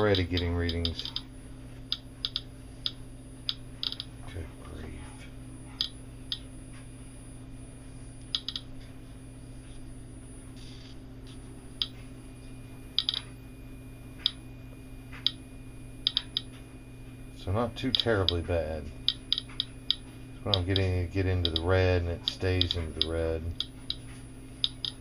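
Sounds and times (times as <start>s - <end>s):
radiation detector clicking: 0.0s - 1.3s, 1.9s - 4.1s, 5.7s - 6.9s, 8.2s - 8.8s, 11.7s - 12.1s, 12.9s - 13.4s, 14.2s - 15.4s, 16.0s - 16.7s, 17.7s - 25.0s.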